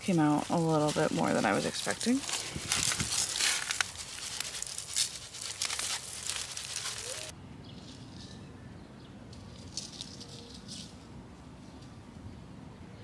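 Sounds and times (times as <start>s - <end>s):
seeds rustling onto soil: 0.0s - 8.3s.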